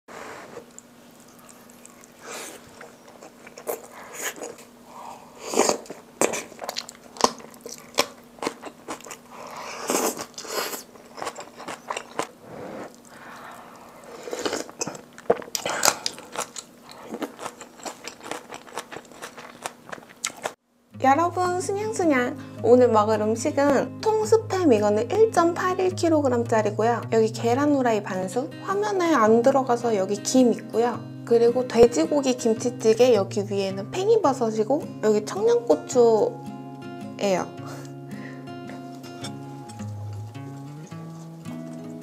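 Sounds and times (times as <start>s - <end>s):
person chewing crunchy food: 0.6s - 20.6s, 38.8s - 42.0s.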